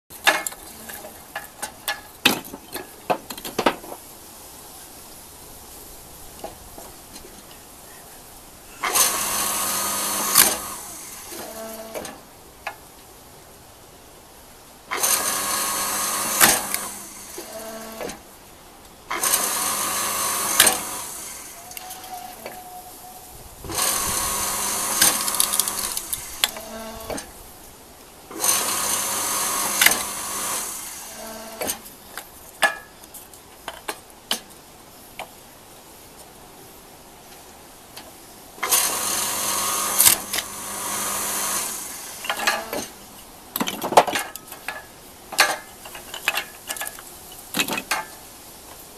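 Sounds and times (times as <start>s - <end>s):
log splitter motor hum: 8.8s - 12.2s, 14.9s - 18.2s, 19.1s - 22.6s, 23.6s - 27.3s, 28.3s - 31.8s, 38.6s - 43.0s
wood cracking: 23.7s - 27.3s
wood pieces knocking: 23.8s - 26.6s.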